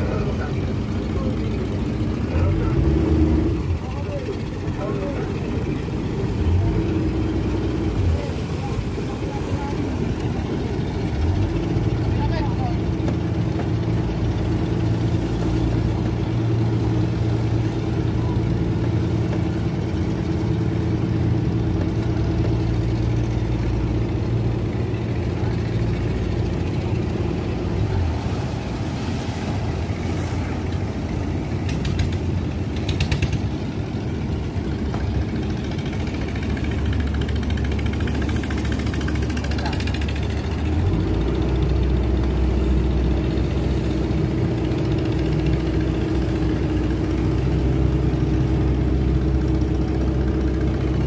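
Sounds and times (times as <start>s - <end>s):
boat engine running: 0.0s - 51.0s.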